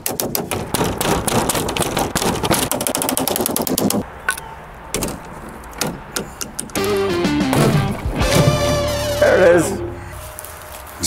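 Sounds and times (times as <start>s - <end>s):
clicks and clattering knocks: 0.0s - 6.8s.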